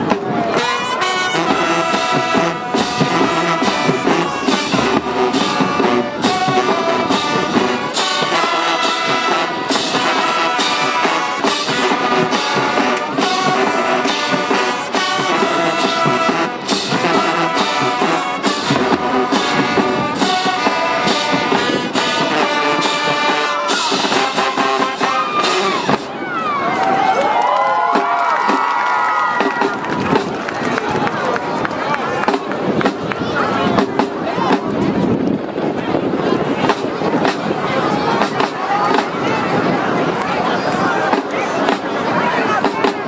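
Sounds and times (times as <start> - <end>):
steady drum beat: 0.0 - 26.1, 27.9 - 30.4, 36.0 - 39.7, 41.1 - 43.0
marching band brass tune: 0.0 - 31.1, 35.9 - 43.0.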